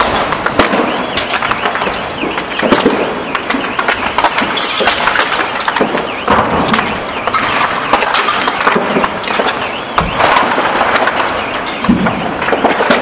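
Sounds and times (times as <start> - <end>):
fire crackling and popping: 0.0 - 13.0.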